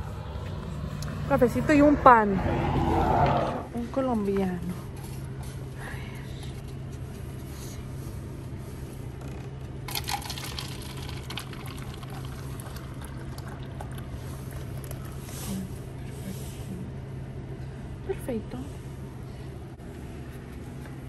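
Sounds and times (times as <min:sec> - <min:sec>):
steady low hum: 0:00.0 - 0:21.0
coffee pouring into cup: 0:09.9 - 0:15.3.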